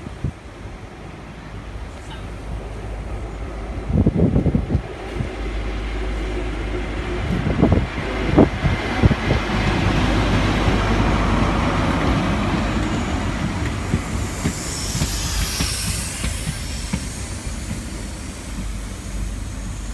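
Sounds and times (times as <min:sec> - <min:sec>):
train passing: 0:00.0 - 0:19.9
high hiss: 0:11.7 - 0:19.9.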